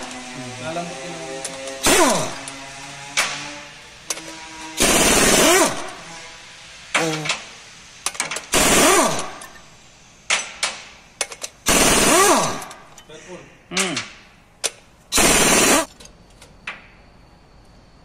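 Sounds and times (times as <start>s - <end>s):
impact wrench hammering: 1.4s - 2.6s, 4.0s - 6.0s, 8.1s - 9.6s, 10.3s - 13.0s, 13.8s - 15.9s.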